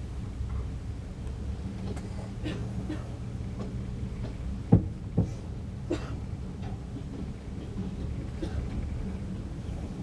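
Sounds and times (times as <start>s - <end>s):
train carriage rumbling: 0.0s - 10.0s
train wheels knocking on rail joint: 3.5s - 5.4s.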